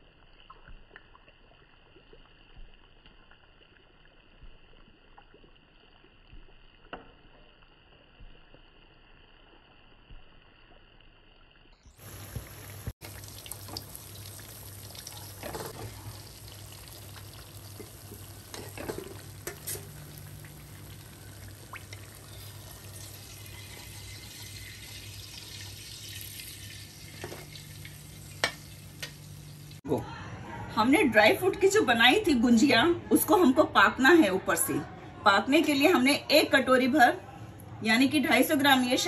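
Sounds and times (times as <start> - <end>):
food deep-frying in hot oil: 0.0 - 29.8.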